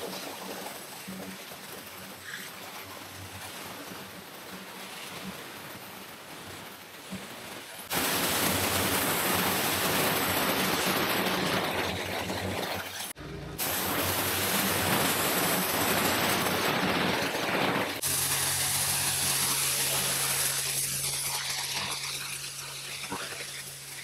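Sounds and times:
pressure washer jet hissing: 7.6 - 24.0.

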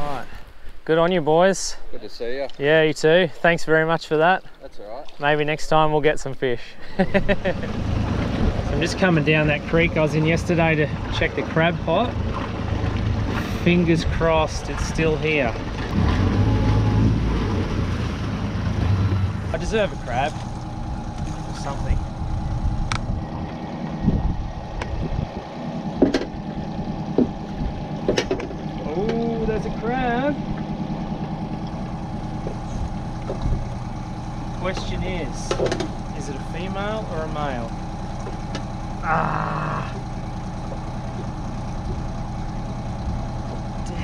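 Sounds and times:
outboard motor idling: 0.0 - 44.0
sharp clicks and knocks: 26.0 - 26.4, 27.1 - 29.2, 34.6 - 36.0.

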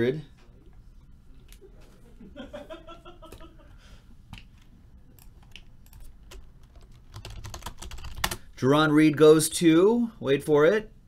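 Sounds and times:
computer keyboard typing: 5.1 - 8.4.

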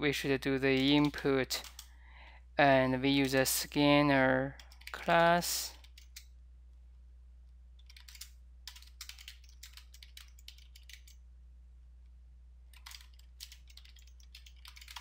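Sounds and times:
faint low hum: 0.0 - 15.0
keyboard typing: 0.7 - 1.9, 4.6 - 6.3, 7.8 - 11.2, 12.7 - 15.0.

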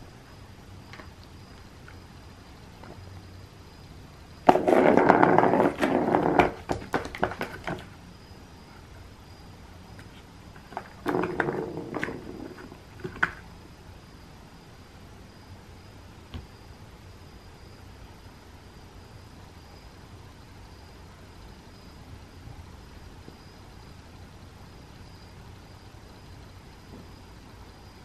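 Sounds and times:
plastic ball rolling around track: 4.5 - 7.9, 10.6 - 13.4.

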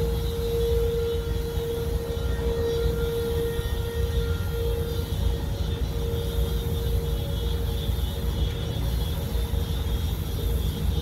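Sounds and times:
warning siren steady tone: 0.0 - 11.0.

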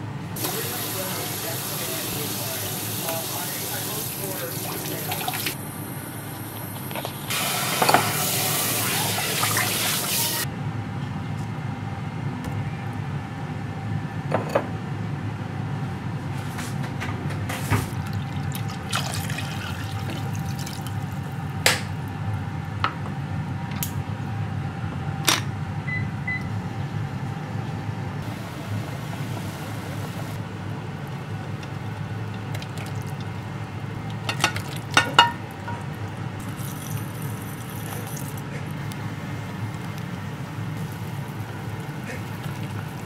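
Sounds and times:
running water: 0.4 - 5.6, 7.3 - 10.4, 17.9 - 21.2, 31.0 - 38.4, 40.8 - 43.0
steady low hum: 20.4 - 43.0
cookware clinking and knocking: 34.3 - 35.8.

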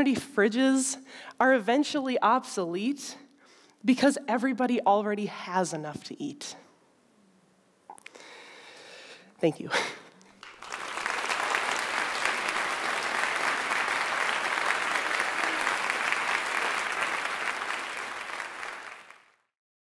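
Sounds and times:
audience applauding: 10.4 - 19.5.

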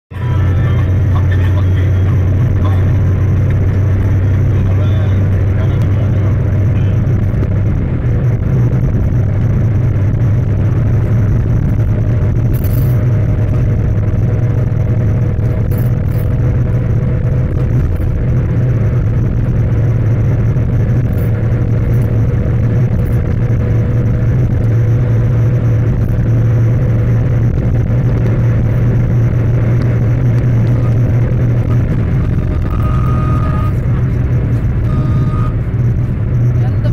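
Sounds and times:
car engine and road noise drone: 0.0 - 36.9
brief high tone: 0.1 - 3.4, 4.3 - 7.2, 30.6 - 34.2, 34.8 - 35.6.

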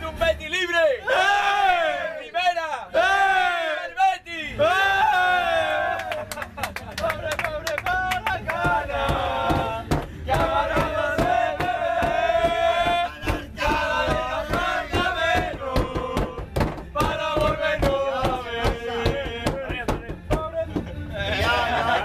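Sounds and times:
group chanting and shouting: 0.7 - 6.4, 7.1 - 22.0
hand claps: 6.0 - 18.8.

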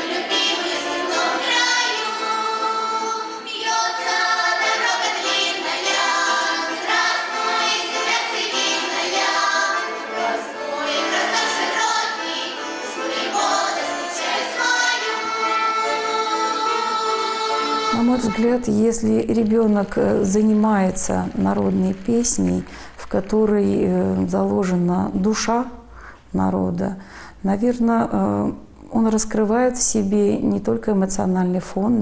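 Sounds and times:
children's choir singing folk song: 0.0 - 24.9.

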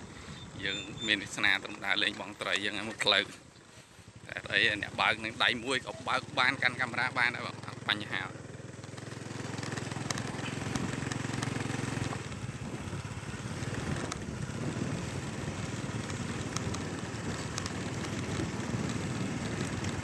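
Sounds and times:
motorcycle engine running: 0.2 - 20.0
rattles and clicks from bumps: 8.8 - 20.0.

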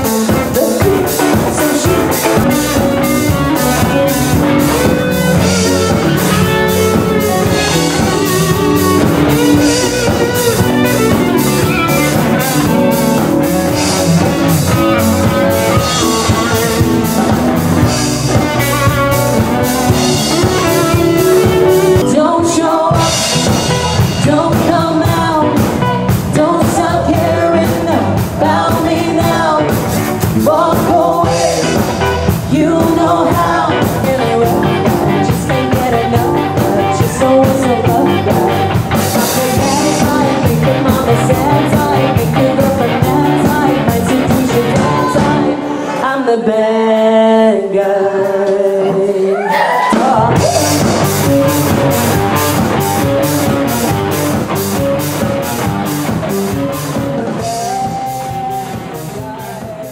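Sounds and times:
woman singing: 0.0 - 6.3, 19.9 - 51.0
drum kit beat: 0.0 - 45.6, 48.2 - 59.9
electric guitar: 0.0 - 47.2, 48.1 - 59.9.

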